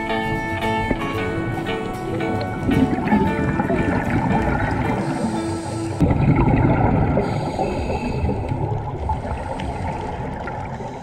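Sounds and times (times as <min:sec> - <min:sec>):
background music note: 0:00.0 - 0:06.8
muffled underwater rushing rumble: 0:00.8 - 0:11.0.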